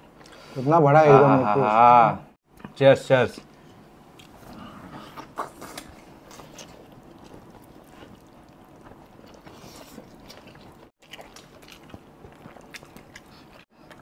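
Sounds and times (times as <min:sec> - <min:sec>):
people chewing wetly: 0:03.5 - 0:14.0.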